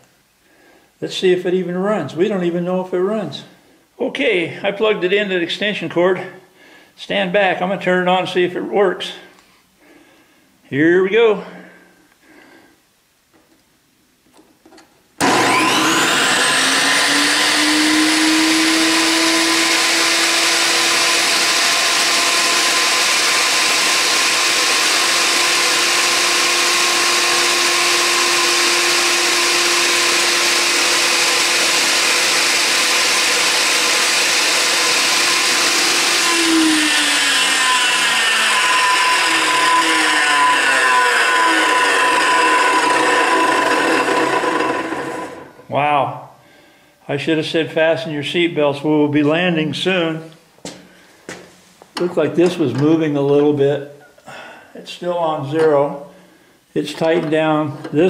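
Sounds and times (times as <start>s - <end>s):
table saw motor whining: 15.2s - 45.6s.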